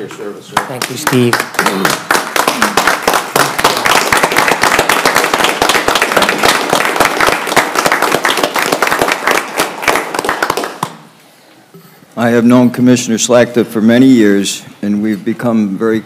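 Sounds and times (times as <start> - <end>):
small group applauding: 0.5 - 11.2.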